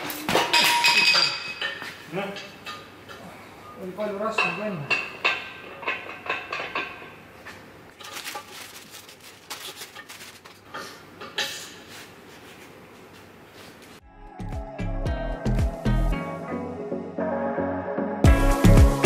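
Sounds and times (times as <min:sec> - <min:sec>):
rustling and handling noises: 0:07.4 - 0:14.0.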